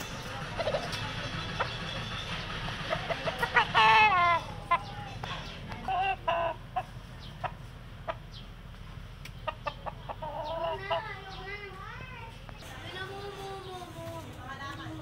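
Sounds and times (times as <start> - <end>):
roosters calling: 0.0 - 15.0
clucking calls: 0.4 - 8.5, 9.3 - 11.4.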